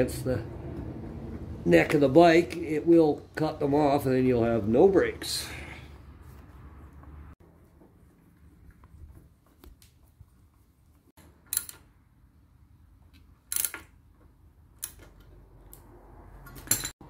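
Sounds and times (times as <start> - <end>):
metallic clicks and scrapes: 11.2 - 11.9, 13.1 - 17.0.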